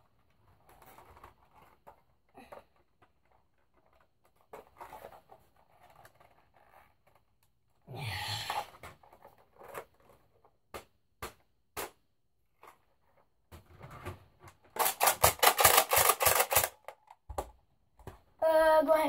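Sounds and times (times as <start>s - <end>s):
plastic parts rustling: 0.1s - 7.3s, 12.6s - 18.2s
plastic clicks and knocks: 13.5s - 18.2s
plastic pieces clattering: 14.6s - 17.4s.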